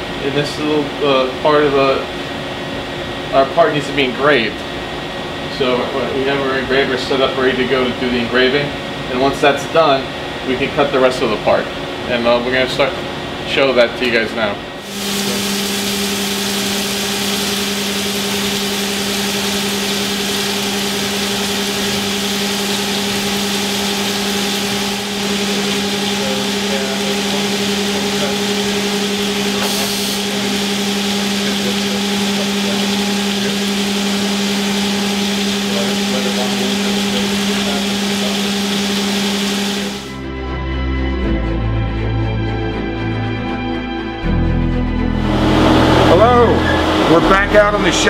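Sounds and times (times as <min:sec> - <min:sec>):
machine hum: 0:00.0 - 0:48.0
coolant spraying hiss: 0:14.8 - 0:40.1
music: 0:40.1 - 0:48.0.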